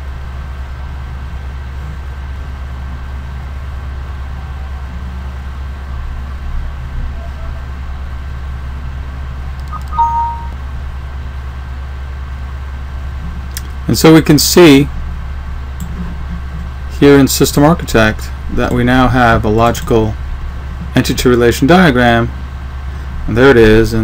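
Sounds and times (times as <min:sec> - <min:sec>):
low hum with faint hiss: 0:00.0 - 0:24.0
two-note computer chime: 0:09.6 - 0:10.6.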